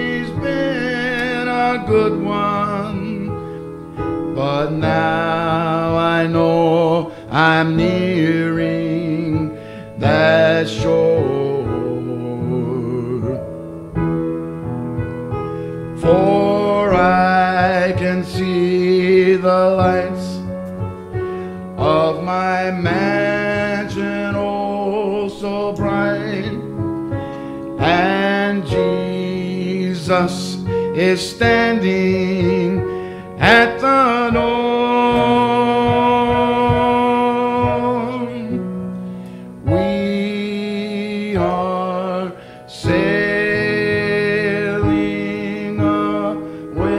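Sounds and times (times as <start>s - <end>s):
man singing gospel song: 0.0s - 13.7s, 15.8s - 20.6s, 21.6s - 46.9s
piano accompaniment: 0.0s - 46.9s.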